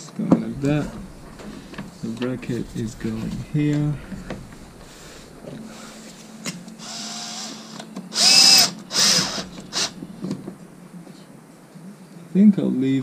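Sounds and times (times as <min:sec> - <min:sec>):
cordless screwdriver motor whining: 0:06.8 - 0:10.0.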